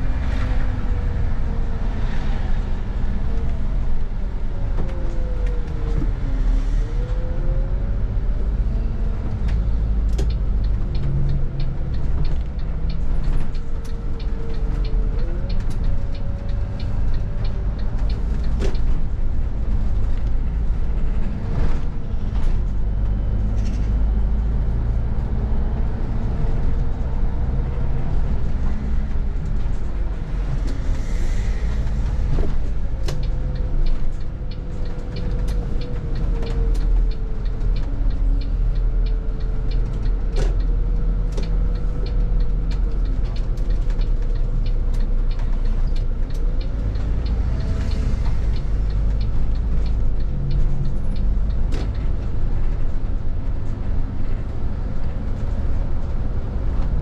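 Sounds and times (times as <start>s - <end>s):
bus engine and road rumble: 0.0s - 57.0s.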